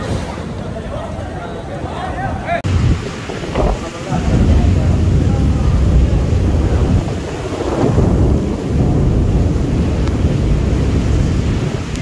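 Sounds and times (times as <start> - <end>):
heavy rain: 2.5 - 12.0
storm wind gusting: 2.6 - 12.0.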